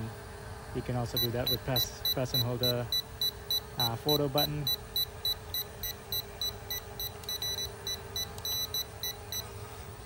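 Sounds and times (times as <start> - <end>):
steady low hum: 0.0 - 10.0
high-pitched controller beeps: 4.6 - 9.5.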